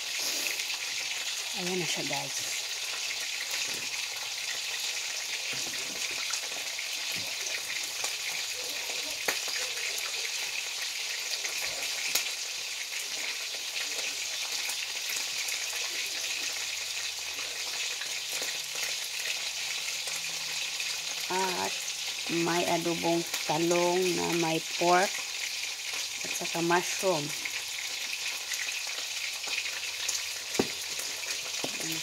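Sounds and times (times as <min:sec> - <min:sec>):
oil sizzling in a pan: 0:00.0 - 0:32.0
oil popping: 0:27.6 - 0:32.0.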